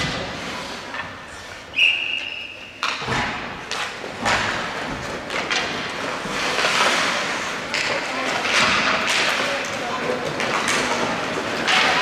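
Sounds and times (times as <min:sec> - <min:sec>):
ice skates scraping: 0:00.0 - 0:02.7, 0:03.3 - 0:12.0
referee's whistle: 0:01.7 - 0:02.7
hockey sticks and puck knocking: 0:02.8 - 0:12.0.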